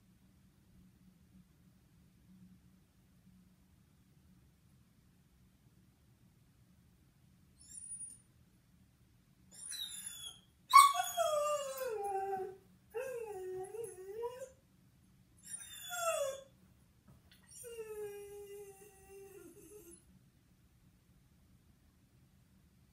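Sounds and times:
dog howling: 9.6 - 14.6, 15.5 - 16.4.

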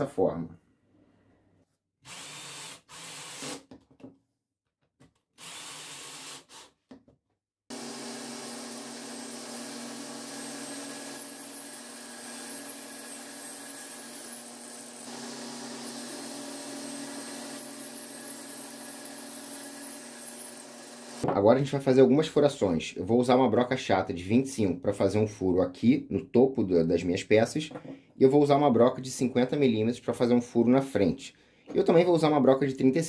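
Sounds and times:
table saw cutting wood: 7.7 - 21.3.

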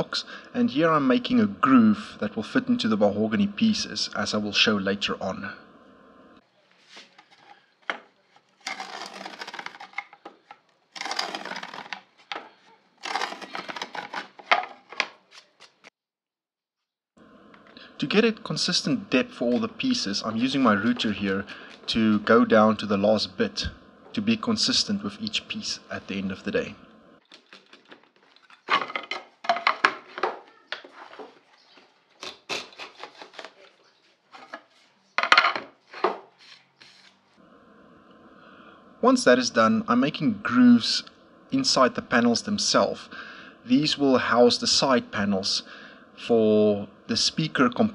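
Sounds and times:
hand plane scraping wood: 8.4 - 10.4, 11.0 - 15.0.

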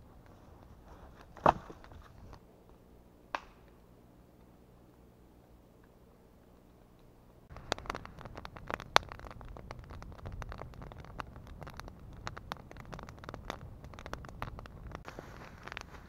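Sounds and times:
low rumble of flame: 0.0 - 16.0
campfire crackling and popping: 3.3 - 3.8, 5.8 - 16.0.

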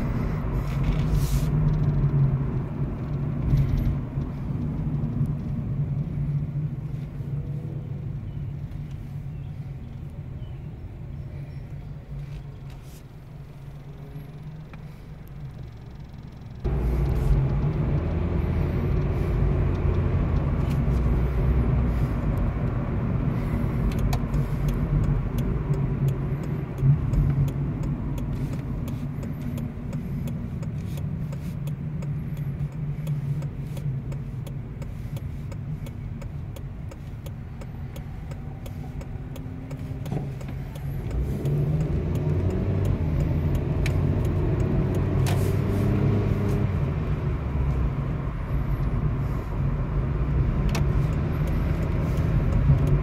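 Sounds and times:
car engine and tyre noise: 0.0 - 53.0.

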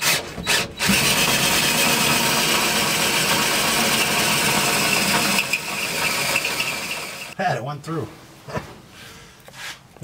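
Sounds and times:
drill boring through sheet steel: 0.0 - 7.4.

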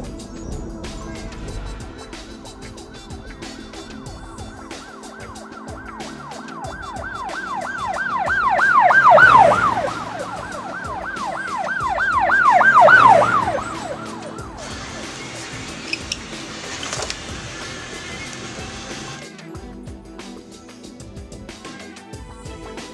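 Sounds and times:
background music: 0.0 - 22.9
siren-like wailing tone: 3.2 - 16.3.

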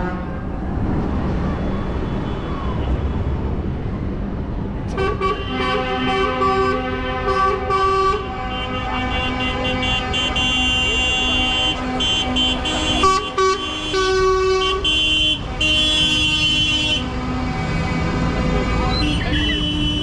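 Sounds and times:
vehicle horns honking: 4.9 - 20.0.

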